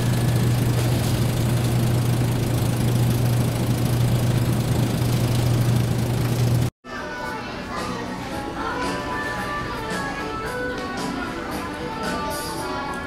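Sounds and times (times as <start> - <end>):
refrigeration hum: 0.0 - 6.7.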